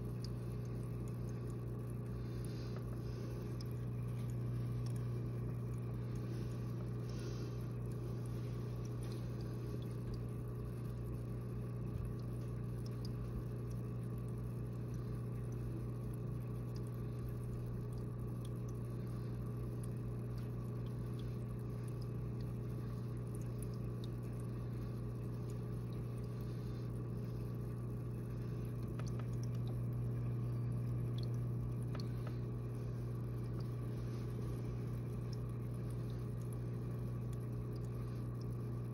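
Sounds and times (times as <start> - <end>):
electrical hum of aquarium equipment: 0.0 - 38.9
faint ticks: 19.7 - 32.5.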